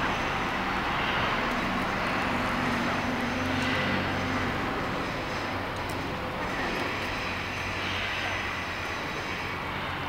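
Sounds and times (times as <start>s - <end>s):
garbage truck diesel engine: 0.0s - 10.0s.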